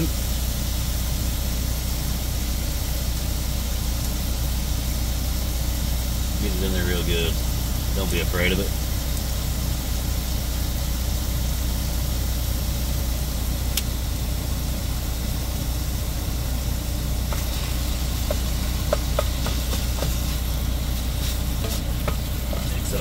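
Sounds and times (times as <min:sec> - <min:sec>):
diesel engine idling: 0:00.0 - 0:23.0
meat frying in a skillet: 0:00.0 - 0:23.0
spatula scraping a pan: 0:17.3 - 0:22.6.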